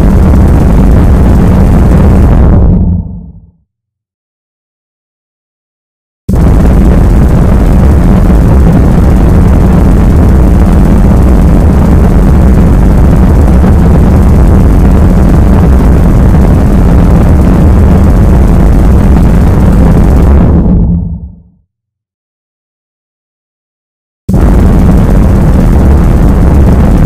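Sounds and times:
harsh distorted noise: 0.0 - 3.6, 6.3 - 21.6, 24.3 - 27.0
low drone: 0.0 - 3.6, 6.3 - 21.6.

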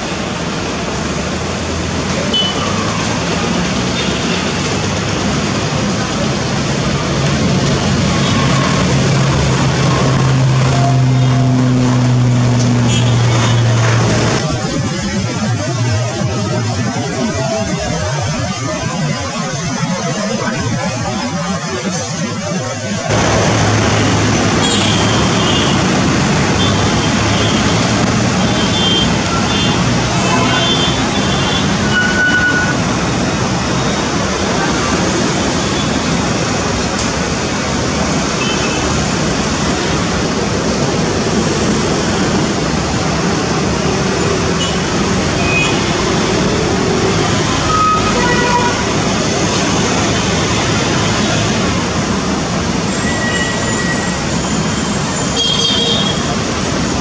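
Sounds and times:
turboprop engines rumbling: 0.0 - 52.9
turboprop airliner climbing: 6.2 - 16.7.

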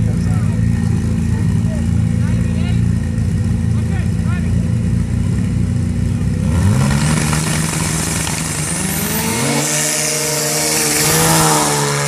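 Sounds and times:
snowmobile engines accelerating: 6.4 - 12.0.

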